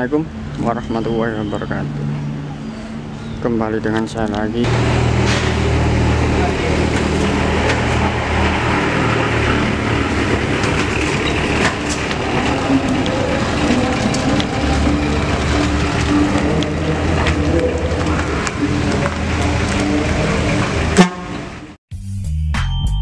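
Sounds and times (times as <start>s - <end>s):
tyres rolling over gritty ground: 4.3s - 21.7s
pickup truck engine running: 4.7s - 21.7s.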